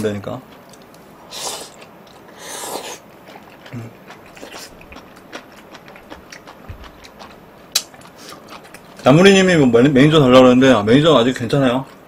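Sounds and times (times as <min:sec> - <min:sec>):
person slurping noodles: 0:01.3 - 0:03.0
chewing with wet clicks: 0:03.1 - 0:09.2.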